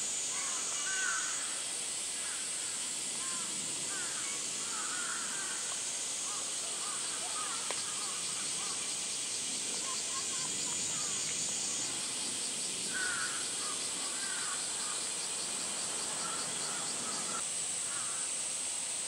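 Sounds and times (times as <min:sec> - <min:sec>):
cicadas droning: 0:00.0 - 0:19.0
crows cawing: 0:00.9 - 0:01.5, 0:03.2 - 0:08.8, 0:12.9 - 0:15.1, 0:16.1 - 0:18.3.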